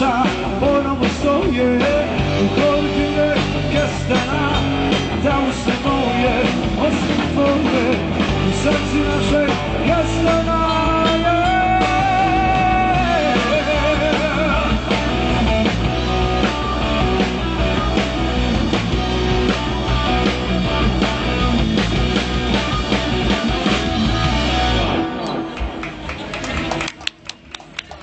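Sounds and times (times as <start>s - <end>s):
rock band playing: 0.0s - 28.0s.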